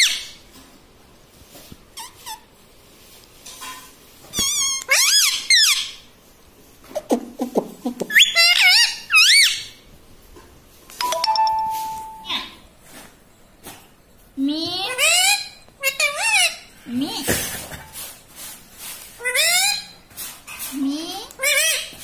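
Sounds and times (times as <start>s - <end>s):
parakeet squeaky calls: 0.0s - 0.4s, 4.3s - 6.0s, 8.1s - 9.8s.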